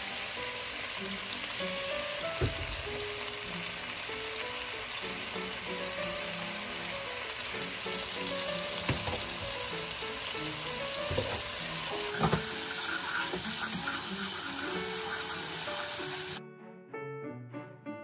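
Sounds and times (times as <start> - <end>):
seasoning sizzling in oil: 0.0 - 16.4
soft background music: 0.0 - 18.0
wooden spoon knocking on pan: 2.4 - 3.0, 8.8 - 9.5, 11.0 - 12.5.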